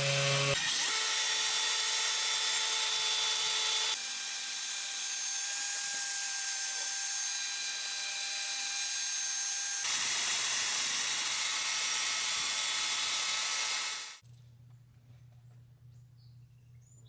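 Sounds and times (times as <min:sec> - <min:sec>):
electric drill motor whine: 0:00.0 - 0:14.2.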